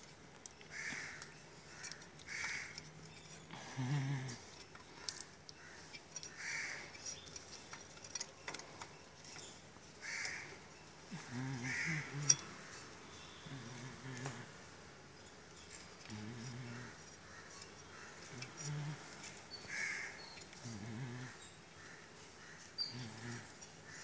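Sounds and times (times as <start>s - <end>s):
harsh animal calls: 10.0s - 14.5s, 16.0s - 24.0s.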